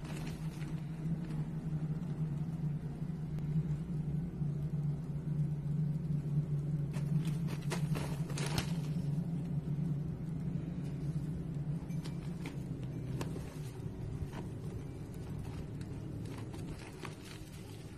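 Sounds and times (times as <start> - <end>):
low hum: 0.0 - 17.9
paws crackling on plastic tarp: 13.2 - 17.9.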